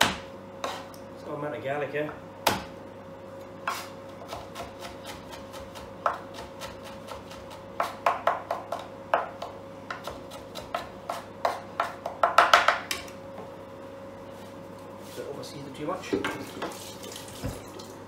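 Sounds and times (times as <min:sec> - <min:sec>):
knife chopping on plastic board: 0:02.4 - 0:02.7, 0:03.7 - 0:13.0.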